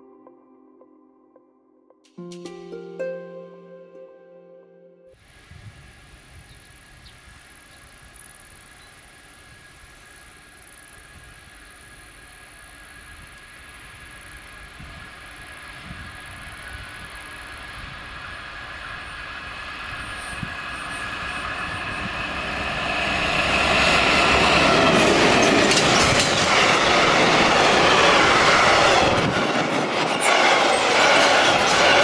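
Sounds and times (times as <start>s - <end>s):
diesel locomotive engine passing: 11.4s - 32.0s
freight wagons clattering over rails: 24.7s - 27.3s.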